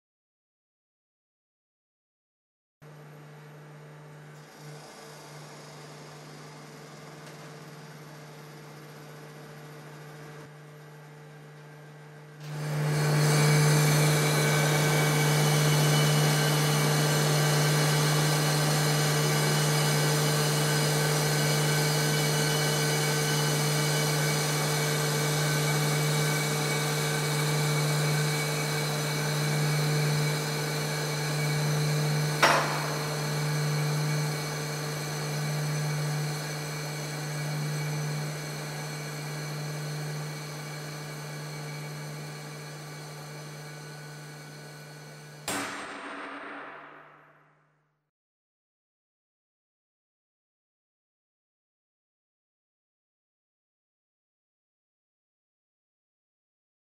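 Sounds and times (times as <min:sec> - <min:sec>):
testing machine drive humming: 0:31.5 - 0:43.6.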